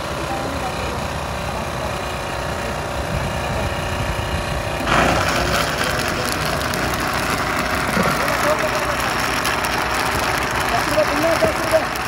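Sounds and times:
steady engine-like hum: 0:00.0 - 0:12.0
electric blender whirring: 0:04.6 - 0:12.0.

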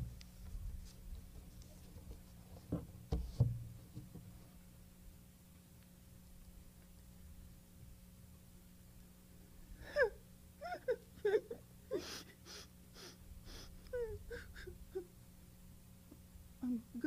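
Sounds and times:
woman whimpering and moaning: 0:09.8 - 0:15.1.

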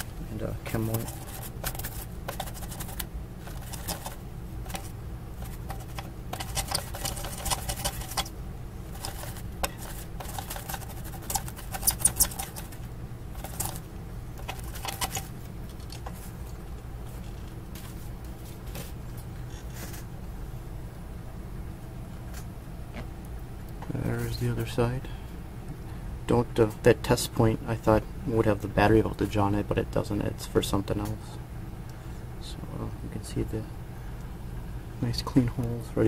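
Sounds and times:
low steady hum: 0:00.0 - 0:36.0
brush scrubbing circuit board: 0:00.7 - 0:08.3, 0:08.9 - 0:13.8.

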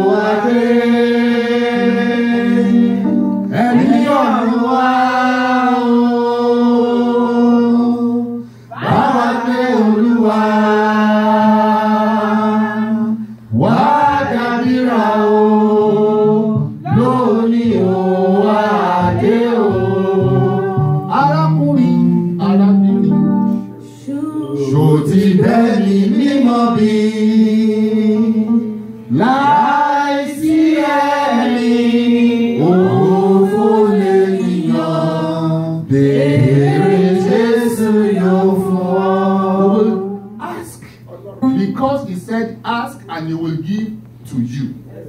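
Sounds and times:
faint instrumental backing: 0:11.4 - 0:27.1, 0:28.1 - 0:45.0.

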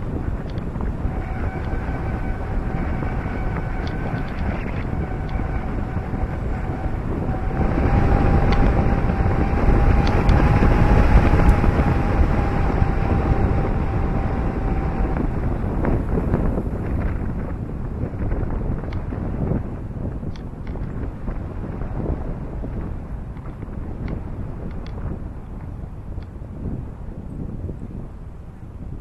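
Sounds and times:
tyres rumbling on road: 0:00.0 - 0:25.2
wind buffeting microphone: 0:00.0 - 0:29.0
thin steady whistle: 0:00.3 - 0:16.6.

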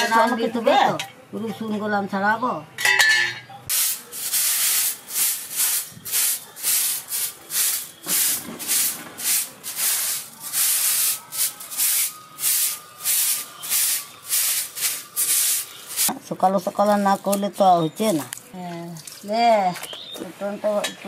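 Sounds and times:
grass broom sweeping earth floor: 0:03.7 - 0:16.2.

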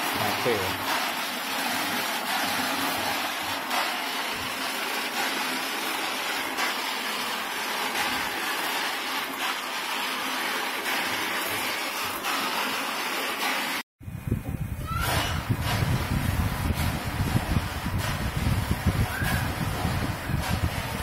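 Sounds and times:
peanuts rattling in roaster drum: 0:00.0 - 0:13.6.

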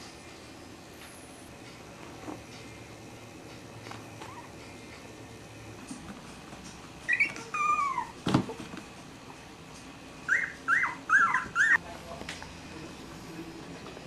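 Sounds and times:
puppies whimpering: 0:04.2 - 0:04.6, 0:07.1 - 0:08.2, 0:10.3 - 0:11.8.

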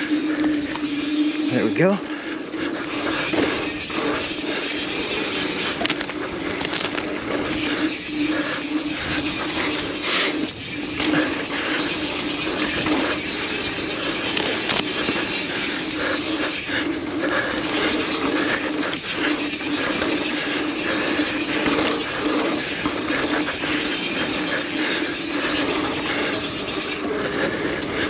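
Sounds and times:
bike tyres rolling on dirt: 0:00.0 - 0:28.0
bike rattling and knocking: 0:01.8 - 0:28.0.

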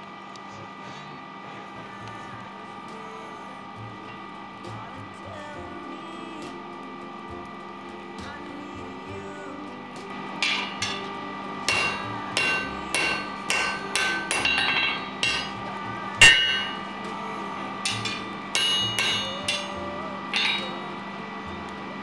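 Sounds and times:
hammer ringing on anvil: 0:10.4 - 0:17.2, 0:17.8 - 0:21.0.

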